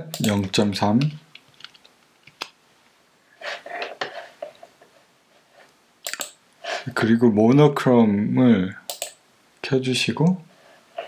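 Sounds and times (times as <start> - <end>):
mouse and keyboard clicks: 6.0 - 6.4, 8.9 - 9.2.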